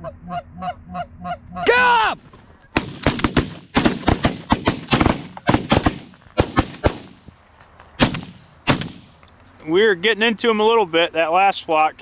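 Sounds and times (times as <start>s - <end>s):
shotgun blasts: 2.8s - 7.3s, 8.0s - 9.2s.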